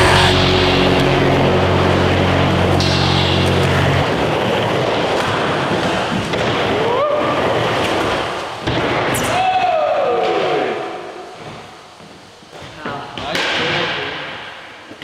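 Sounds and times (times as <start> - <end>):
rock music: 0.0 - 4.8
skateboard wheels rolling: 1.7 - 13.4.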